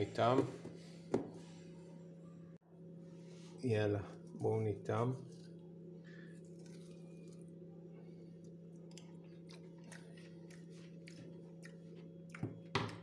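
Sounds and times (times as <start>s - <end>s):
steady low hum: 0.0s - 13.0s
crunchy chewing: 5.2s - 13.0s.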